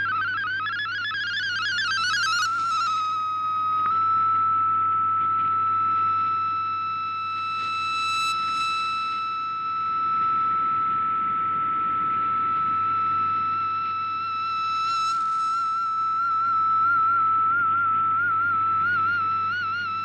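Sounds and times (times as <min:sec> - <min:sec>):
steady radio data tone: 0:00.0 - 0:04.5.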